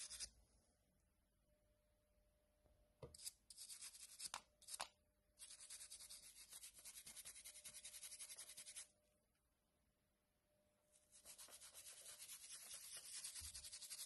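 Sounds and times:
small brush scrubbing circuit board: 0:00.0 - 0:00.3, 0:05.4 - 0:08.9, 0:11.1 - 0:14.0.

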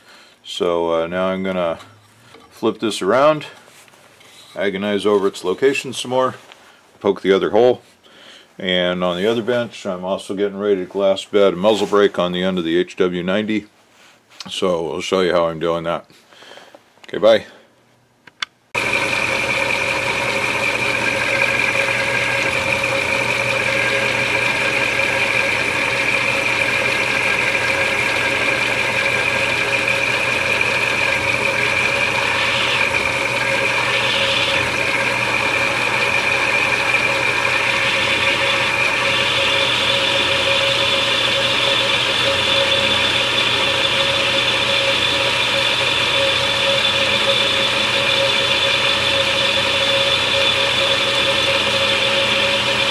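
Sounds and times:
higher whine: 0:18.8 - 0:45.2
milling machine whining: 0:18.8 - 0:52.9.

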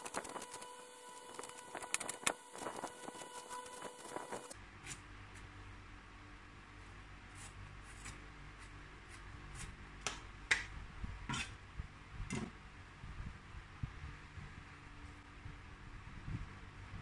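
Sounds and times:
knife scraping squash: 0:07.3 - 0:09.7, 0:11.3 - 0:11.6.

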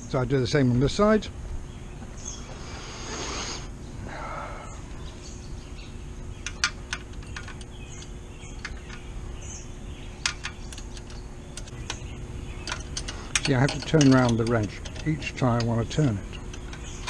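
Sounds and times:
birds chirping faintly: 0:00.0 - 0:17.0
wrench clicking on metal nut: 0:12.6 - 0:16.9.

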